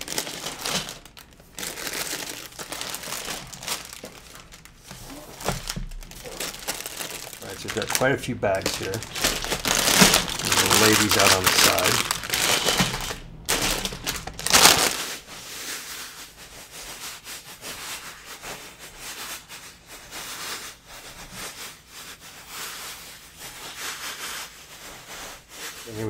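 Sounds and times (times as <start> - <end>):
plastic bags crinkling: 0.0 - 15.3.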